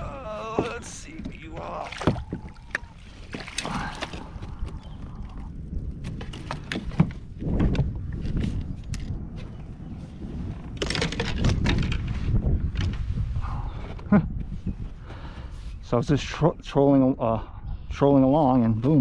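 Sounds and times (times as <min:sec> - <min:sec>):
fishing gear clicks and clatter: 0:00.7 - 0:05.4, 0:06.0 - 0:09.2, 0:10.7 - 0:12.1.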